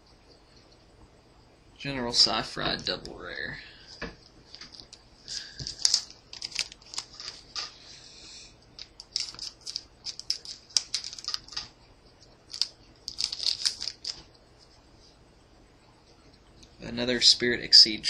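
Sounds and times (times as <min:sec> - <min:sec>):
wrapper crinkling and card clicks: 0:04.5 - 0:07.8, 0:08.8 - 0:11.7, 0:12.4 - 0:14.3.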